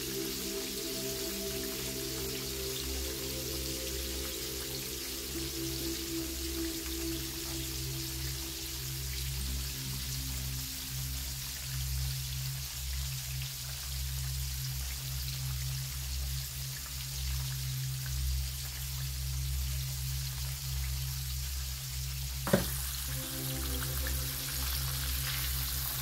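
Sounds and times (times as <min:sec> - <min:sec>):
fish deep-frying in oil: 0:00.0 - 0:26.0
sharp knock: 0:22.5 - 0:22.8
low hum: 0:22.7 - 0:26.0.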